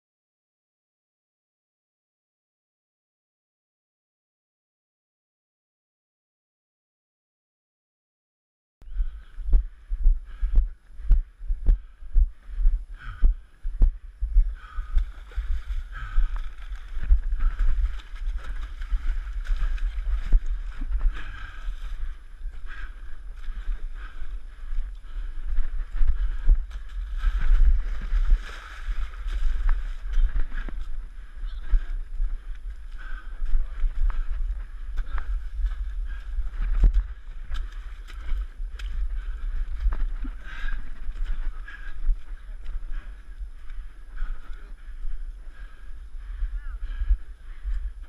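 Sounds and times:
low wind rumble: 0:08.8 - 0:48.0
running footsteps thumping: 0:13.0 - 0:48.0.

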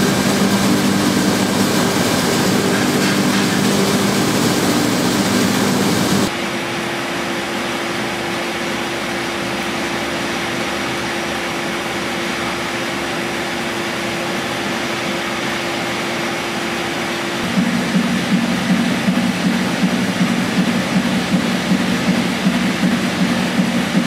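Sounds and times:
steam engine mechanical whirr: 0:00.0 - 0:06.3, 0:10.2 - 0:24.0
steady hum tone: 0:17.4 - 0:24.0.

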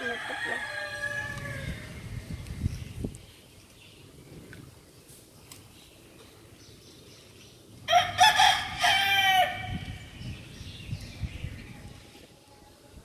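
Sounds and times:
rooster crowing: 0:00.0 - 0:01.9, 0:07.9 - 0:09.7.

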